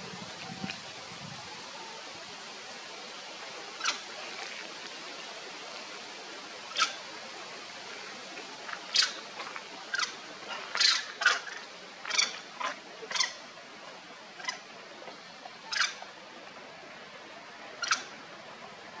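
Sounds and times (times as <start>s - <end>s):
steady low hiss: 0.0s - 19.0s
monkeys squeaking: 8.9s - 9.2s, 10.8s - 12.4s.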